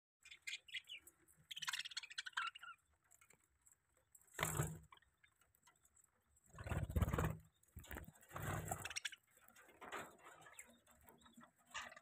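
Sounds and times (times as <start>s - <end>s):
budgerigars chirping: 0.2s - 2.8s.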